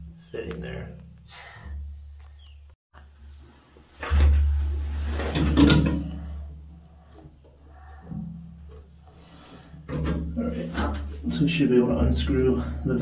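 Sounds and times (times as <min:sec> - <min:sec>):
wrench scraping and clanking on metal: 0:04.1 - 0:06.3.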